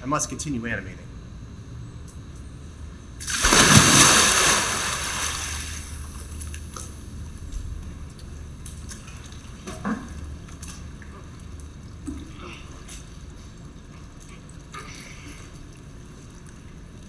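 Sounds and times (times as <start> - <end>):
short splashes or knocks: 3.2 - 6.0
pool water lapping and sloshing: 3.2 - 17.0.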